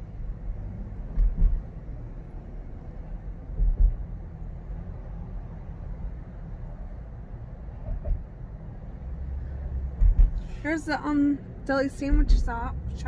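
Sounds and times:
engine and tyre rumble: 0:00.0 - 0:13.0
low thumps: 0:01.1 - 0:01.7, 0:03.5 - 0:04.2, 0:09.9 - 0:10.4, 0:12.0 - 0:12.7.

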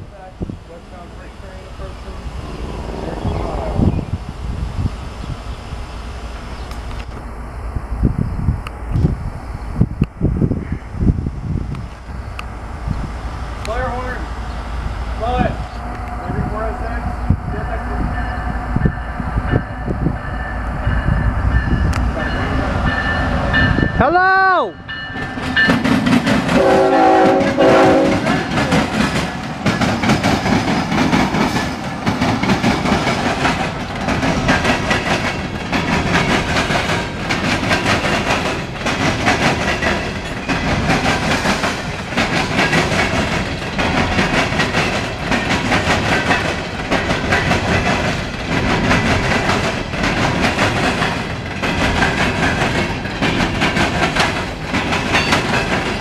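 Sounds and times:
freight cars clickety-clack: 0:25.1 - 0:56.0
train horn chord: 0:26.6 - 0:28.5.

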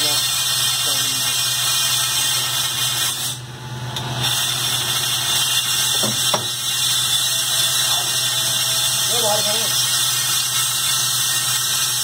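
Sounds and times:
lathe motor hum: 0:00.0 - 0:12.0
sharp knocks: 0:06.0 - 0:06.5.

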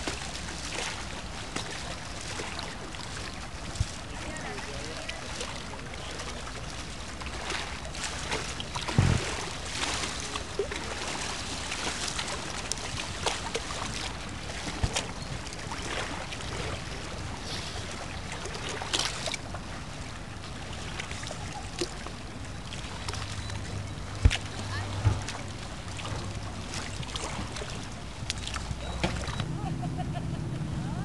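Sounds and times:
lake water lapping and splashing: 0:00.0 - 0:31.0
heavy thump: 0:08.9 - 0:09.5, 0:25.0 - 0:25.3.

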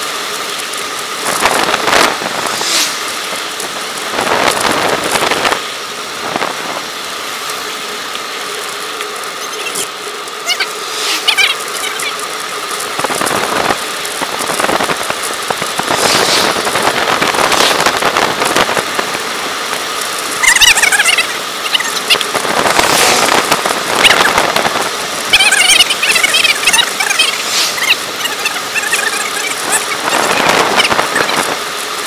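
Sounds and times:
bike tyres on wet road: 0:00.0 - 0:32.0
wind rushing over microphone: 0:01.2 - 0:07.0, 0:12.9 - 0:20.5, 0:22.0 - 0:25.4, 0:26.7 - 0:32.0
high wavering squeaky chirps: 0:09.4 - 0:12.3, 0:20.4 - 0:22.3, 0:25.2 - 0:31.5.

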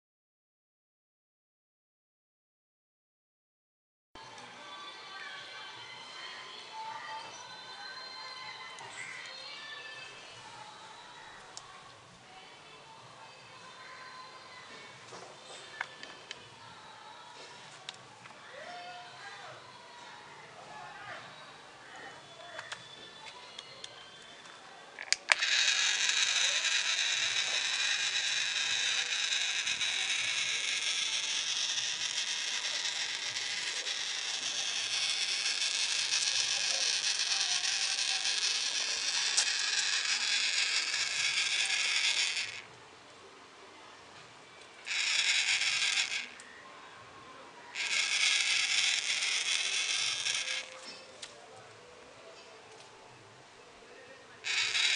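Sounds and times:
toy car motor running: 0:25.0 - 0:42.7, 0:44.8 - 0:46.4, 0:47.7 - 0:51.1, 0:54.4 - 0:54.9.

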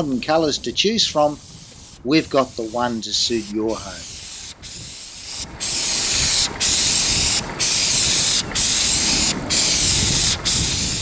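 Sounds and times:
spray gun hissing: 0:00.0 - 0:11.0.

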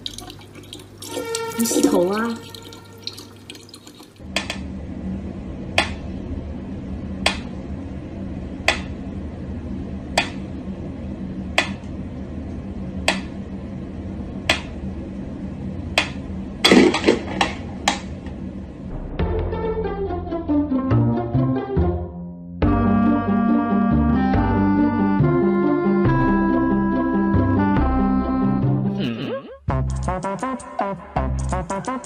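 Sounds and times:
music: 0:01.1 - 0:03.0, 0:18.9 - 0:32.0.

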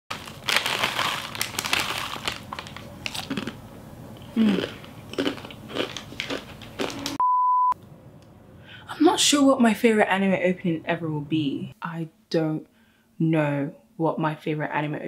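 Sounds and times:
crunching dry snack: 0:00.1 - 0:03.6, 0:04.2 - 0:07.2
foil snack bag crinkling: 0:00.1 - 0:03.6, 0:04.4 - 0:07.2.

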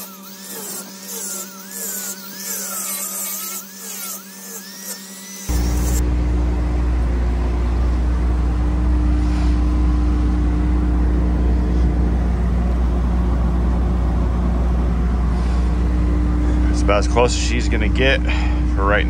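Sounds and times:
large engine running steadily: 0:05.6 - 0:19.0.

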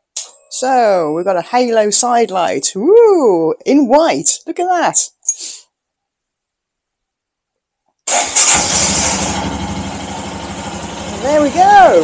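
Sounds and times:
motorcycle engine starting and idling: 0:08.1 - 0:12.0.

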